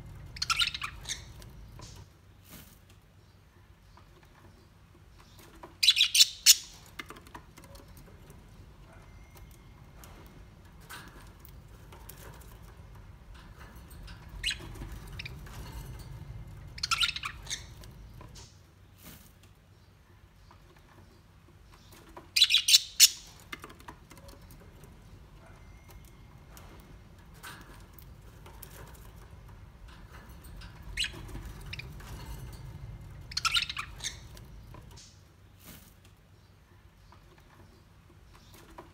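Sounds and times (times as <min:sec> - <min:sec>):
bird chirps: 0:00.2 - 0:02.0, 0:05.2 - 0:07.0, 0:14.1 - 0:18.5, 0:21.7 - 0:23.6, 0:33.2 - 0:35.2.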